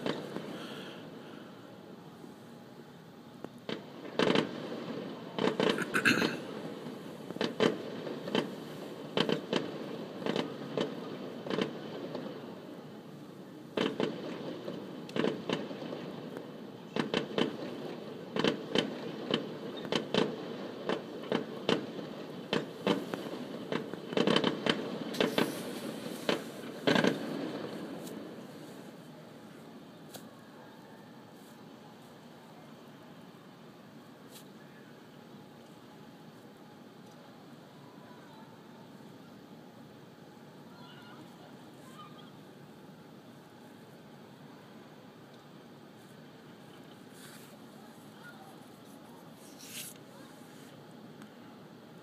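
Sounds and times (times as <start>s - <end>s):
fireworks bursting: 0.0s - 0.9s, 3.6s - 12.9s, 13.7s - 30.3s
fireworks crackling: 0.0s - 0.9s, 3.6s - 13.0s, 13.7s - 30.3s.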